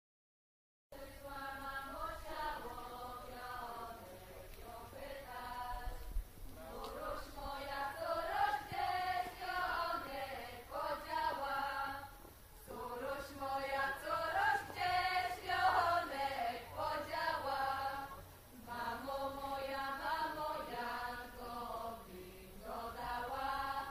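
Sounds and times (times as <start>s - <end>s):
women's vocal group singing: 1.0s - 23.9s.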